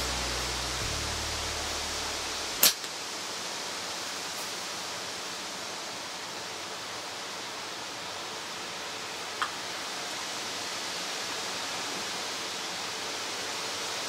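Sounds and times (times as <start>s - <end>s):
sharp crack: 0.0s - 3.0s.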